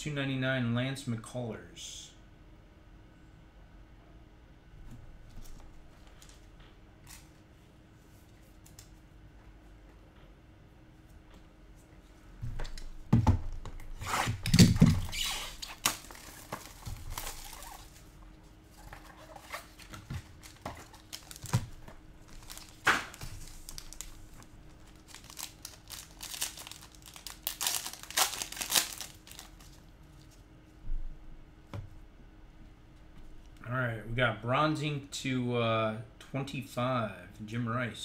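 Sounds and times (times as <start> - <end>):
card packaging tearing and crinkling: 13.9 - 18.0, 18.8 - 29.9.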